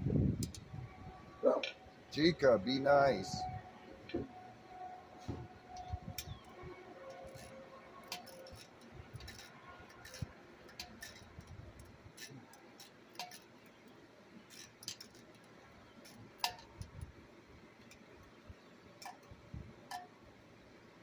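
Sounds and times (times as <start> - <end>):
wrench clinking on bolts: 7.1 - 13.6.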